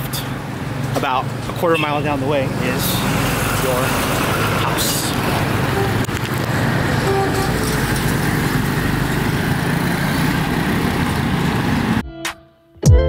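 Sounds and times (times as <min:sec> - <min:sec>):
road noise: 0:00.0 - 0:12.0
truck and motorcycles passing: 0:00.0 - 0:12.0.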